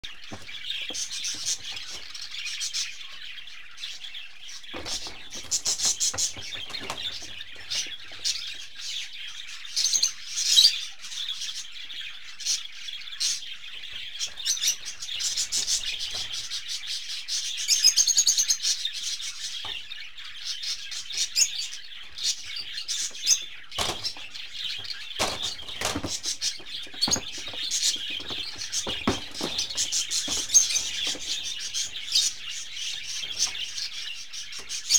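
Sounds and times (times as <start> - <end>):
small birds chirping: 0.0 - 34.9
kittens tussling in wire cage: 4.7 - 8.5, 23.0 - 34.0.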